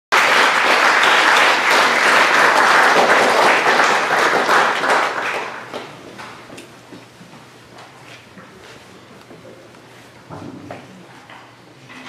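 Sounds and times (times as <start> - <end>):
audience applauding: 0.1 - 6.3.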